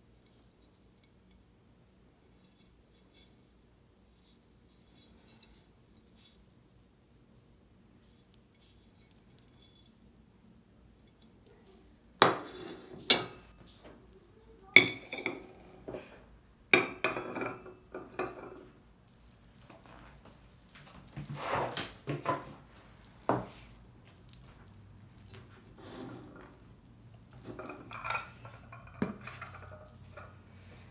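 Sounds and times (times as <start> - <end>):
china clinking on a table: 12.1 - 16.1, 16.7 - 18.7, 19.4 - 30.4.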